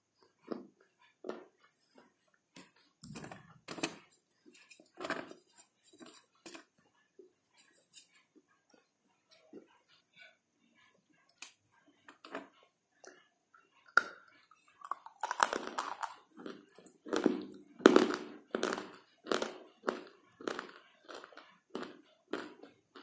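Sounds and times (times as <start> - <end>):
slate pieces crunching when chewed: 14.8 - 23.0.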